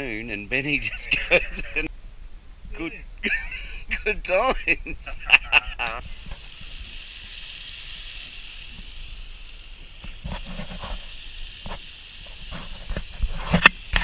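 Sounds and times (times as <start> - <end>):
fish sizzling: 4.3 - 14.0.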